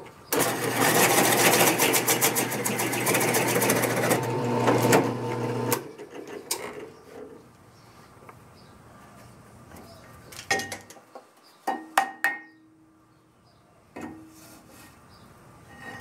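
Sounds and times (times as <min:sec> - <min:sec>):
drill press motor hum: 0:02.5 - 0:05.9.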